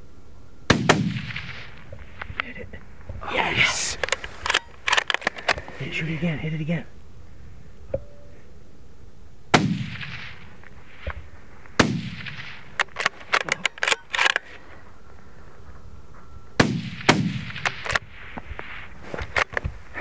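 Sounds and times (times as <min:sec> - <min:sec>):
rifle shots echoing: 0:00.7 - 0:01.8, 0:09.5 - 0:10.6, 0:11.8 - 0:14.3, 0:16.6 - 0:18.0
sharp clicks: 0:04.0 - 0:05.6.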